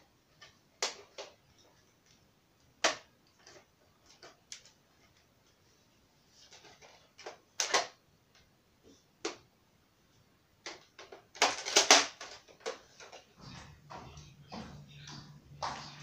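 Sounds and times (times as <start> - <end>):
toy gun plastic clicks: 10.7 - 12.8.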